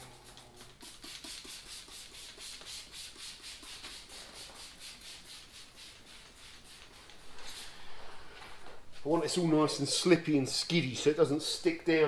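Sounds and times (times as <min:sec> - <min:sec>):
spray bottle squirting: 0:00.0 - 0:07.3.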